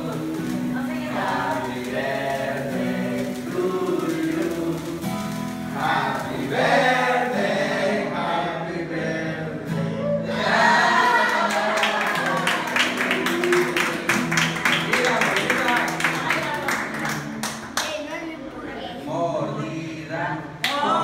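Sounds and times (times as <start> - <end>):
strummed acoustic guitar: 0.0 - 10.6, 12.3 - 17.7
group of people singing: 0.0 - 14.1, 19.1 - 21.0.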